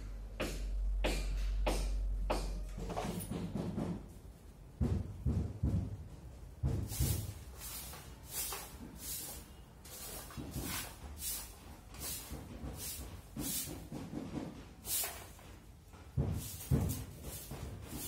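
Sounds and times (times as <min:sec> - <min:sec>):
heavier footstep thuds: 0:04.8 - 0:07.6, 0:15.9 - 0:18.0
bare feet walking on tile: 0:06.6 - 0:18.0.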